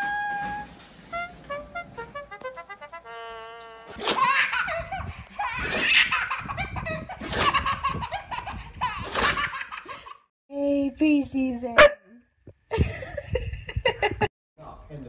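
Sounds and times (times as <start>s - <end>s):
baby laughing: 3.9s - 10.2s.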